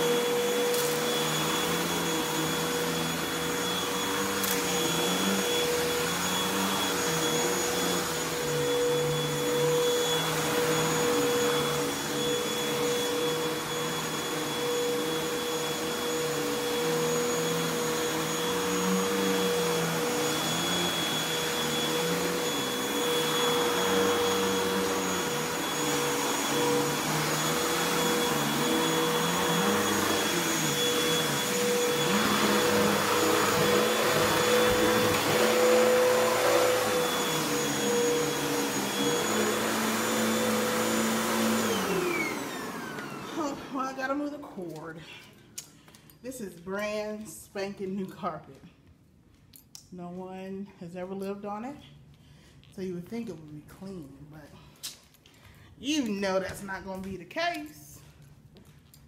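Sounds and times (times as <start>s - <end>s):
vacuum cleaner running on carpet: 0.0s - 44.6s.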